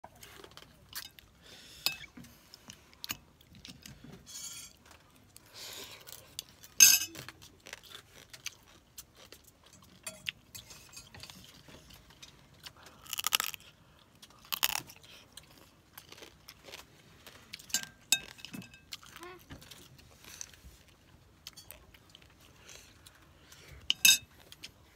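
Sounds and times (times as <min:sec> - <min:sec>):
crab shell cracking: 0:13.0 - 0:13.6.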